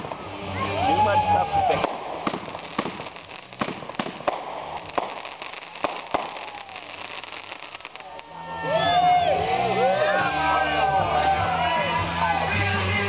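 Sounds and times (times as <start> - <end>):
fireworks bangs and pops: 0.0 - 0.4, 1.6 - 8.4
fireworks crackle: 0.0 - 9.6.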